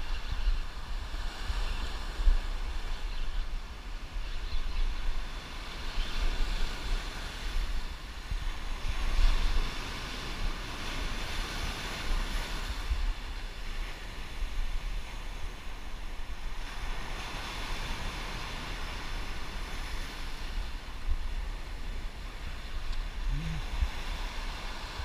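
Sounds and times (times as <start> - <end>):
wind buffeting microphone: 0.0 - 25.0
surf breaking on shore: 6.4 - 25.0.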